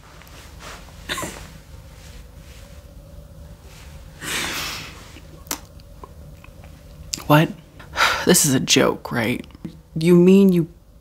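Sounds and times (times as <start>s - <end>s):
person sniffing: 4.2s - 5.2s.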